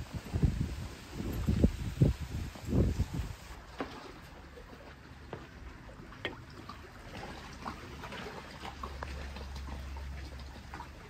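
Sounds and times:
small waves lapping on stone shore: 0:00.0 - 0:11.0
little splashes and clicks: 0:05.4 - 0:11.0.

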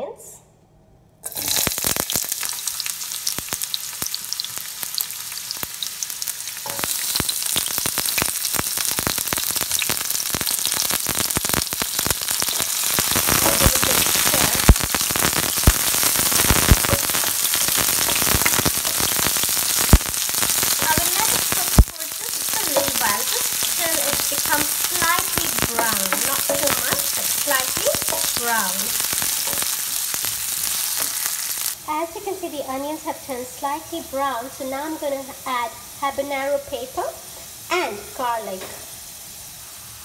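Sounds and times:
onions sizzling in oil: 0:01.2 - 0:40.0
sharp cracks: 0:06.6 - 0:31.8.

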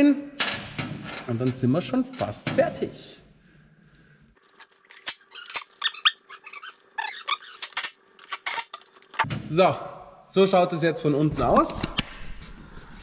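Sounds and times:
metal screws clicking and clinking: 0:04.4 - 0:06.1.

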